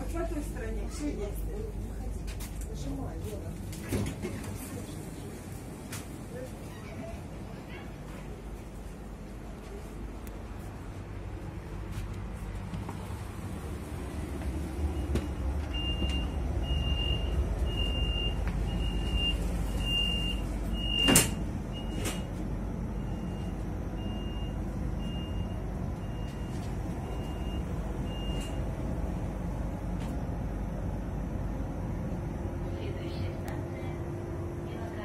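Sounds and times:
train carriage rumble: 0:00.0 - 0:35.0
sliding doors clunking shut: 0:18.4 - 0:22.4.

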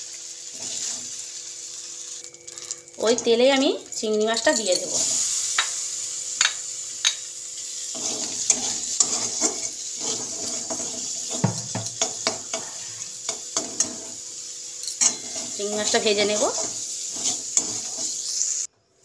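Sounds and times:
prawns sizzling in hot oil: 0:00.0 - 0:18.7
metal spatula scraping a wok: 0:00.5 - 0:01.2, 0:07.7 - 0:14.3, 0:15.0 - 0:18.7.

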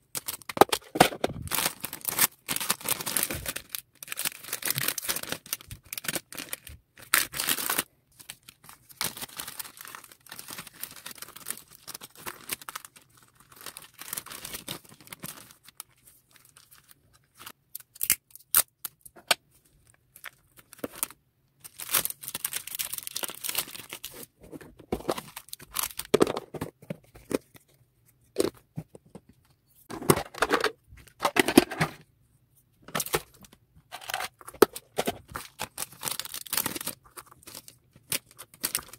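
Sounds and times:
plastic bags crinkling: 0:00.1 - 0:17.6, 0:20.2 - 0:26.6, 0:32.9 - 0:38.9.

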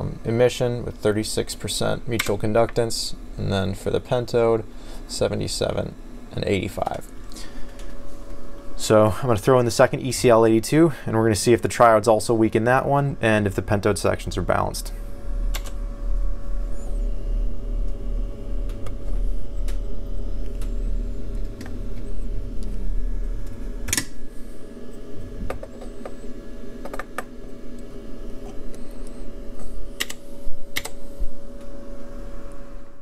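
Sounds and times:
steady hum: 0:00.0 - 0:33.0.

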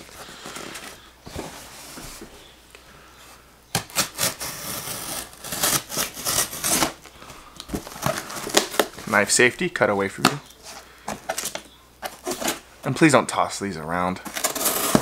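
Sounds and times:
knife cutting cardboard tape: 0:03.7 - 0:07.0, 0:14.3 - 0:15.0
handling rustle: 0:10.1 - 0:12.7.

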